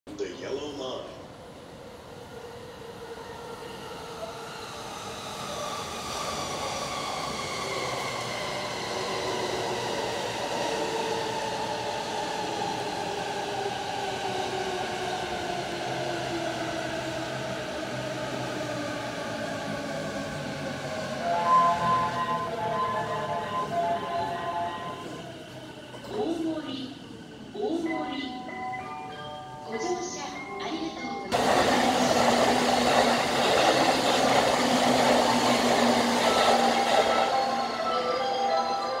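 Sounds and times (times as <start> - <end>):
train rolling rumble: 31.3 - 38.0.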